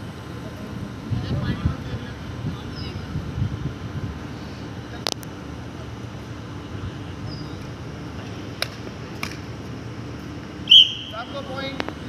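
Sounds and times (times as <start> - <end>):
low background hum: 0.0 - 12.0
rackets hitting shuttlecock: 8.6 - 9.5.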